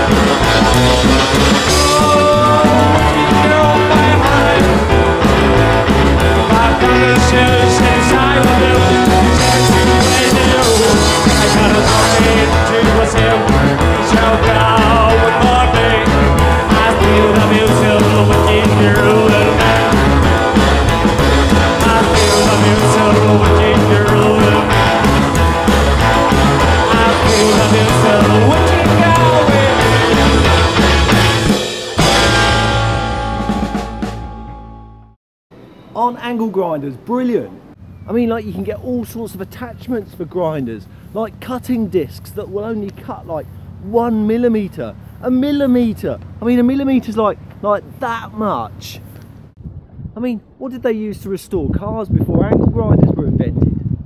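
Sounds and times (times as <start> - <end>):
rock and roll music: 0.0 - 39.9.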